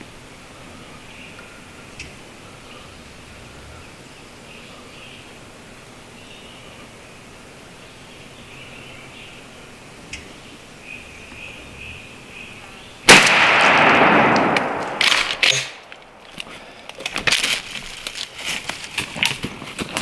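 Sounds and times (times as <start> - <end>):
shotgun blast with echo: 13.1 - 15.8
rustling in dry leaves: 14.4 - 20.0.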